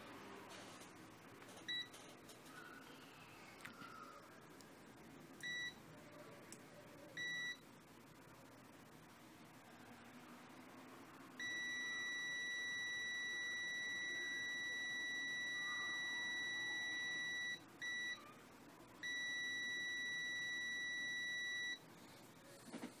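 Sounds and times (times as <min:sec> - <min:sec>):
high-pitched multimeter beep: 0:05.4 - 0:05.8, 0:07.2 - 0:07.6, 0:11.4 - 0:18.3, 0:19.0 - 0:21.8.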